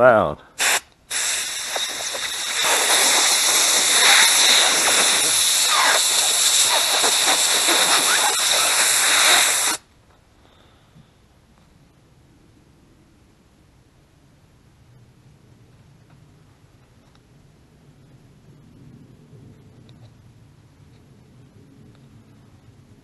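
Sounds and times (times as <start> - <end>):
compressed air blow gun hissing: 0.6 - 9.8.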